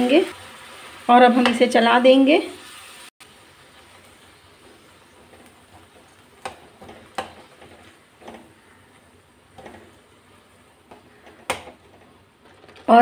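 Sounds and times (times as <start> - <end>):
metal spoon scraping pan: 4.6 - 13.0.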